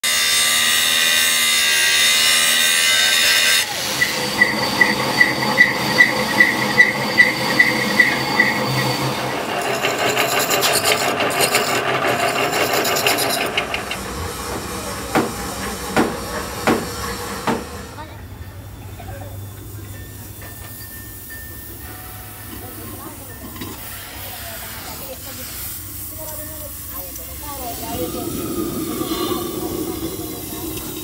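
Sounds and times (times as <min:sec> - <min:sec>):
angle grinder cutting steel: 0:00.0 - 0:17.8
metal lathe cutting steel: 0:00.0 - 0:18.0, 0:26.6 - 0:31.0
knocks: 0:15.1 - 0:17.7.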